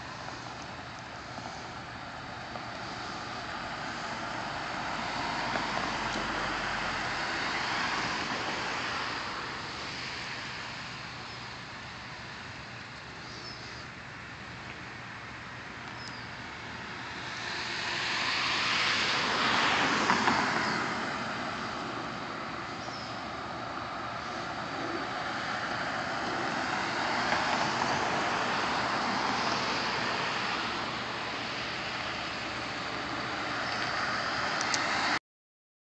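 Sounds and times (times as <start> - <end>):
road traffic passing: 0.0 - 35.2
faint high bird chirps: 15.9 - 16.3, 22.8 - 23.2.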